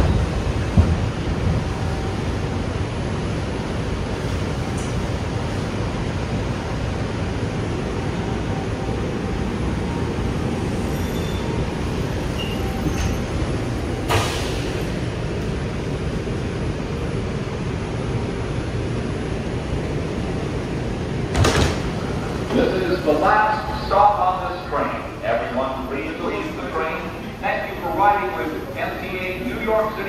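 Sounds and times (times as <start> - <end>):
subway train running: 0.0 - 30.0.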